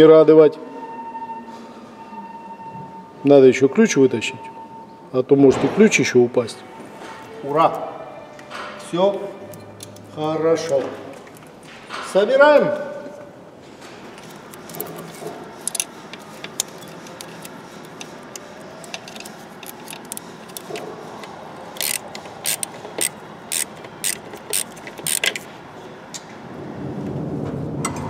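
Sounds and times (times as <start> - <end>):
ratchet wrench clicking: 15.6 - 20.8, 21.7 - 25.5.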